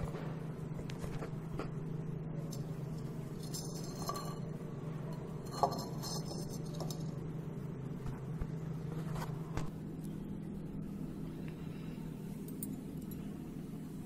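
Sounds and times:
steady low hum: 0.0 - 14.0
ceramic planters clinking: 3.4 - 4.5, 5.2 - 7.1.

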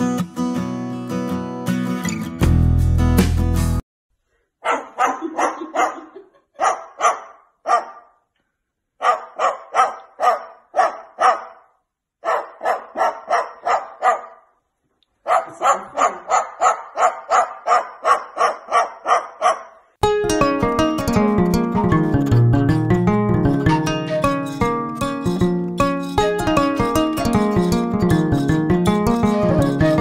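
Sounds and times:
cockatoo mimicking dog barks: 4.6 - 8.2, 9.0 - 14.5, 15.2 - 19.8.

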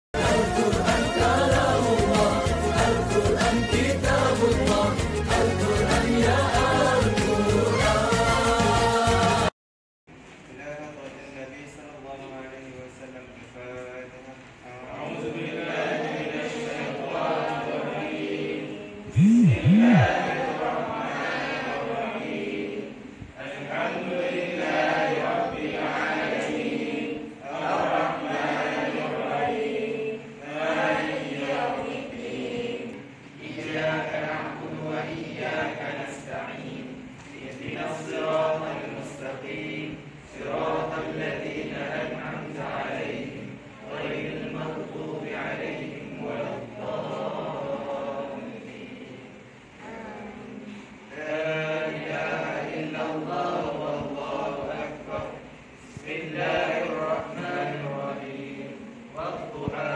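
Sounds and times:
group of voices chanting in unison: 0.2 - 9.5, 14.9 - 59.9
person chanting verses melodically: 19.1 - 20.7.

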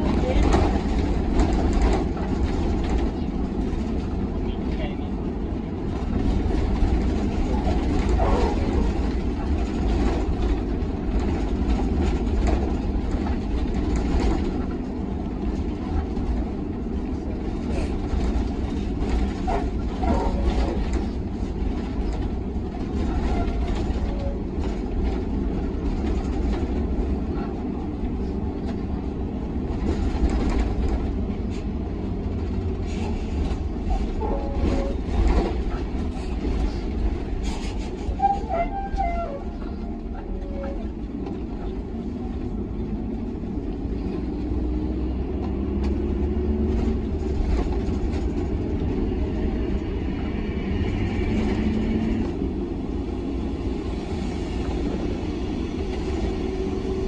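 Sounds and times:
knocks and rattles: 0.0 - 4.4, 5.8 - 31.4
bus engine and tyres rumbling: 0.0 - 57.0.

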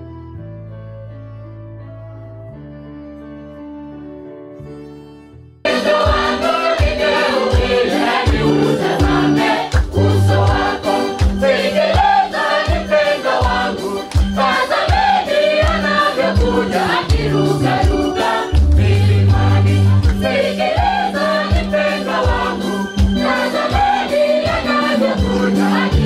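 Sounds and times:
choir singing a gospel hymn: 5.7 - 26.0
steady drum beat: 5.7 - 26.0
bass line: 16.4 - 20.4.

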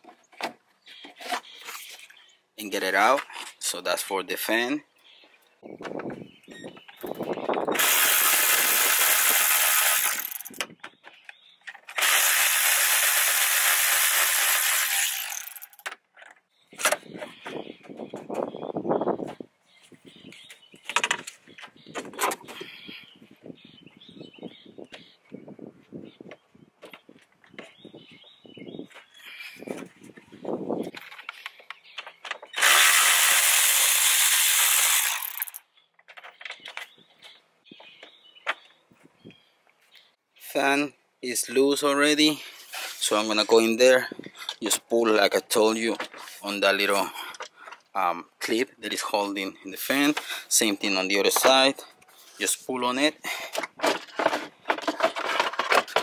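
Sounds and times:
electric ratchet whirring: 7.8 - 10.6, 11.9 - 15.8, 32.6 - 35.6.

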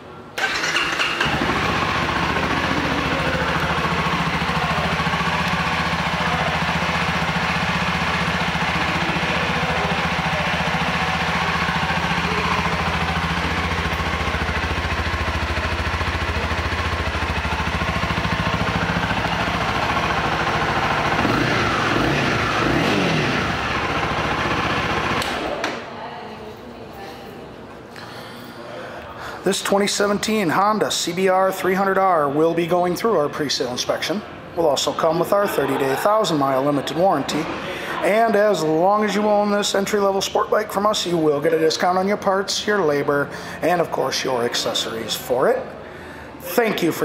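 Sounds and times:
motorcycle engine idling: 0.4 - 25.6.

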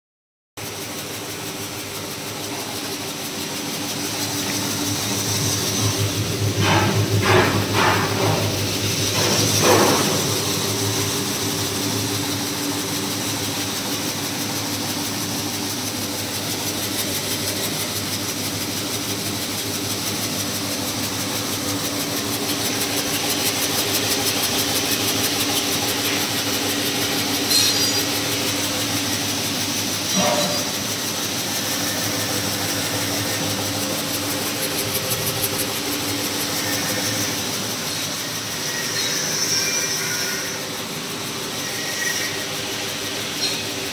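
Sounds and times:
machine clattering: 3.4 - 38.1.

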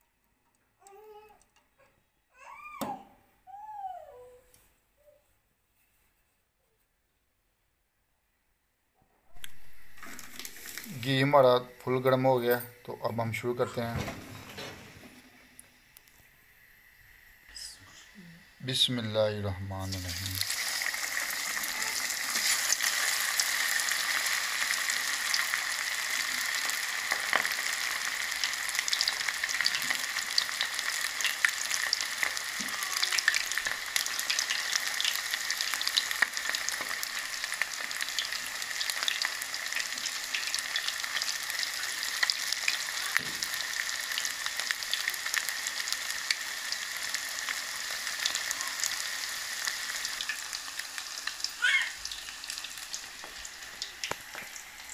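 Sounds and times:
deep-frying sizzle with crackling pops: 9.4 - 11.3, 19.8 - 54.9.

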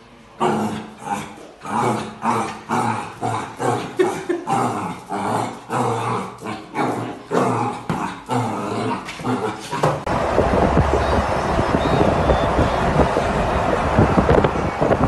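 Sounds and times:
puppy growling: 0.4 - 10.1.

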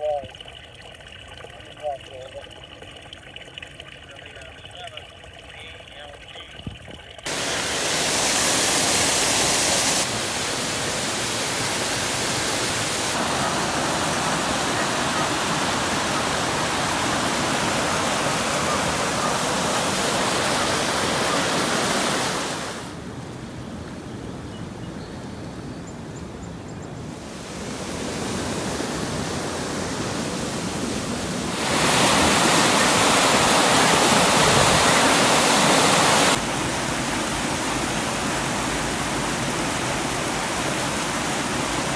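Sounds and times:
storm water rushing through culvert: 7.2 - 23.1, 27.2 - 41.9.

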